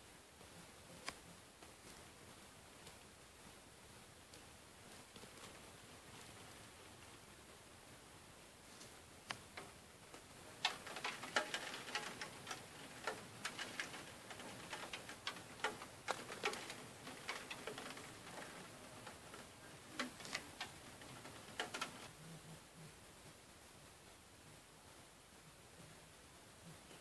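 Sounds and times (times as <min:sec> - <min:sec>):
raindrops tapping on glass: 0:10.4 - 0:22.1.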